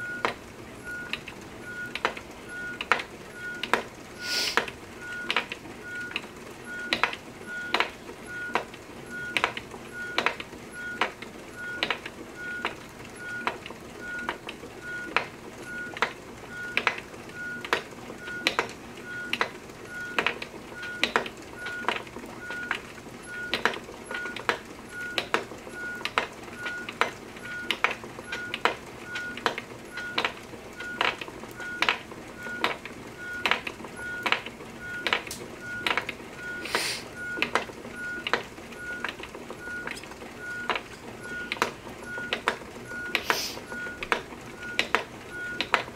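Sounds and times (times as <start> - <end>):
brief hiss: 4.2 - 4.6, 36.6 - 37.1, 43.2 - 43.6.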